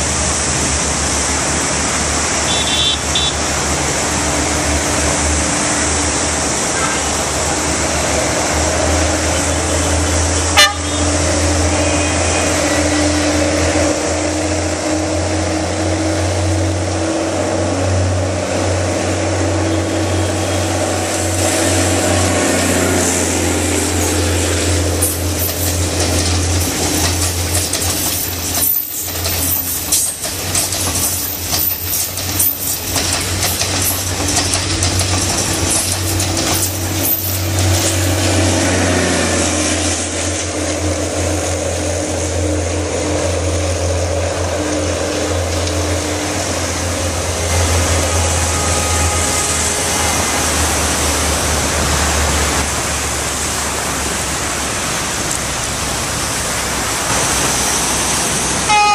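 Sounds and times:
train rumble and rush: 0.0s - 58.9s
train wheels clattering over rail joints: 23.6s - 52.8s.

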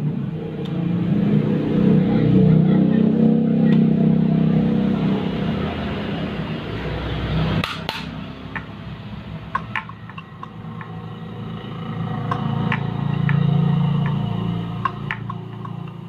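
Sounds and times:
sharp knocks: 7.6s - 8.7s, 9.5s - 11.0s.

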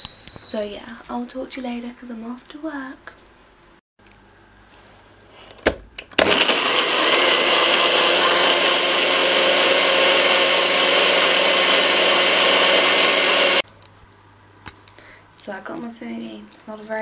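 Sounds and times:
blender motor running: 6.2s - 13.6s.

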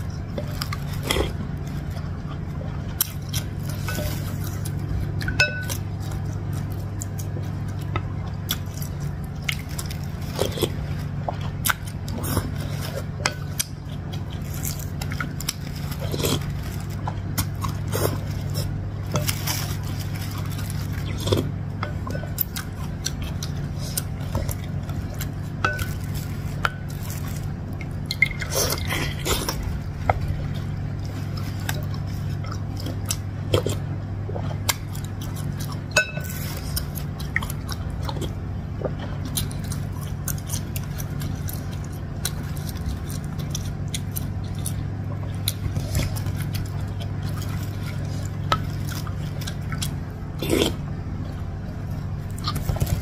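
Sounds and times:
steady low hum: 0.0s - 53.0s
wet chewing and slurping: 0.0s - 53.0s.

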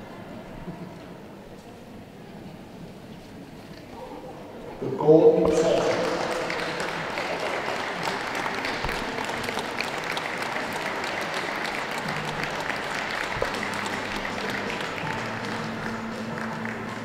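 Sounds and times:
audience applauding: 5.1s - 17.0s.

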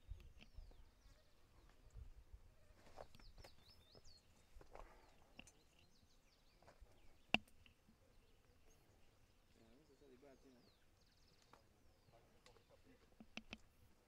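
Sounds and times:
bird chirps: 0.0s - 2.0s, 2.9s - 13.7s
light clicks: 12.4s - 13.7s.

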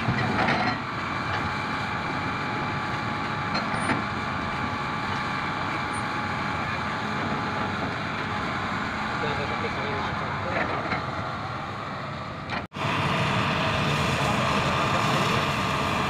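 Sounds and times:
excavator engine and hydraulics: 0.0s - 16.0s
steady whine: 5.4s - 16.0s.

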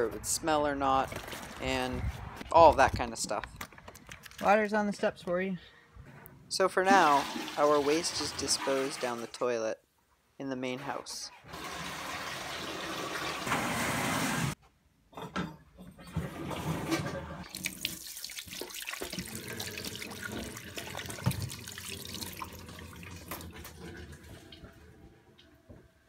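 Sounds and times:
water splashing into metal sink: 17.4s - 25.0s.

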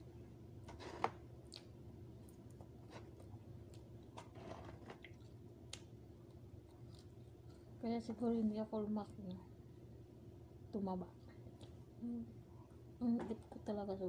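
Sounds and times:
faint steady hum: 0.0s - 14.0s
chewing and mouth clicks: 1.4s - 4.2s, 5.0s - 7.7s, 11.6s - 11.8s.

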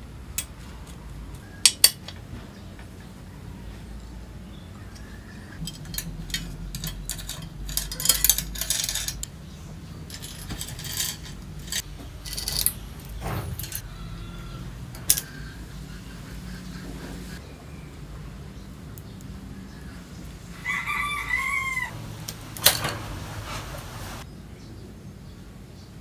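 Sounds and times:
bicycle chain clinking: 5.6s - 9.4s, 10.0s - 13.9s, 14.9s - 15.4s.

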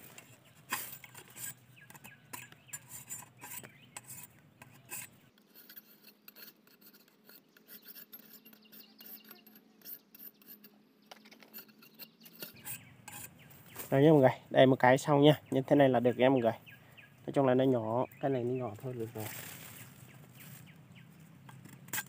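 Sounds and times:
rustling of dry leaves and twigs: 0.0s - 5.1s, 12.5s - 14.4s, 17.1s - 22.0s.

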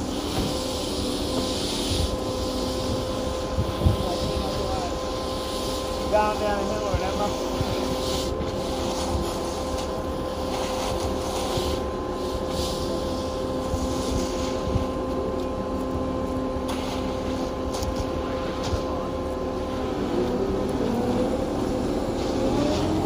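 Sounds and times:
concrete mixer truck engine humming: 0.0s - 23.0s
rakes scraping wet concrete: 3.8s - 13.2s.

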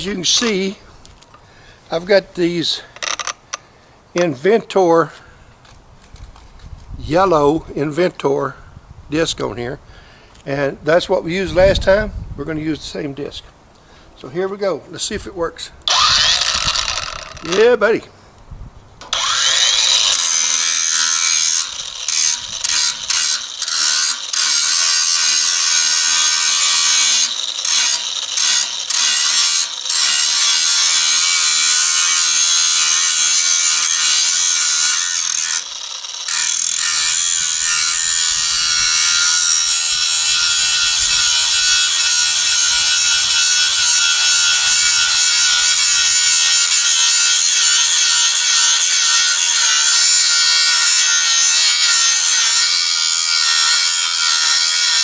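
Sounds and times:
angle grinder grinding steel: 0.0s - 0.8s, 15.9s - 17.8s, 19.0s - 55.0s.

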